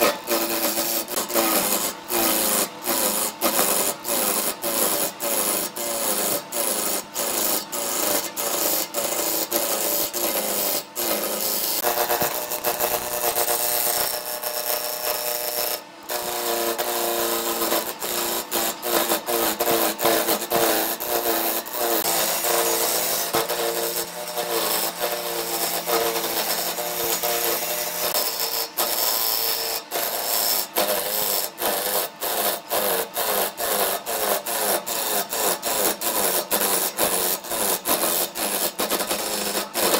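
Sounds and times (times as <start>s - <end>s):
lathe tool scraping wood: 0.0s - 39.9s.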